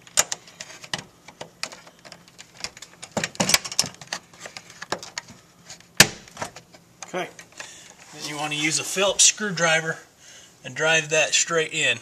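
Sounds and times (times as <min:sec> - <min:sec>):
plastic fasteners clicking and rattling: 0:00.0 - 0:05.3.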